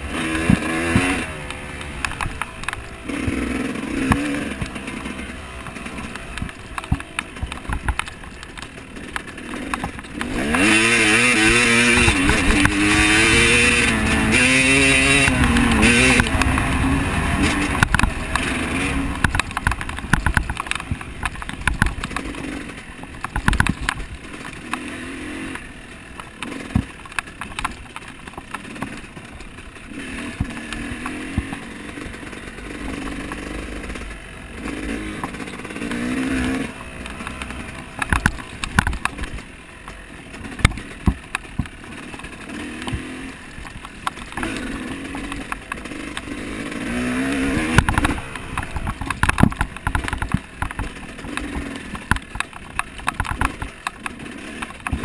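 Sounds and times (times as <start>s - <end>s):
off-road vehicle engine revving: 0.0s - 27.8s, 28.6s - 55.0s
rattles and knocks: 17.3s - 24.6s, 47.6s - 55.0s.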